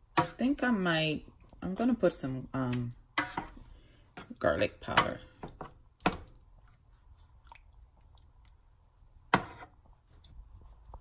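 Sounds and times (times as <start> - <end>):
spoon stirring meat in marinade: 0.0 - 11.0
wet squishing: 5.9 - 11.0.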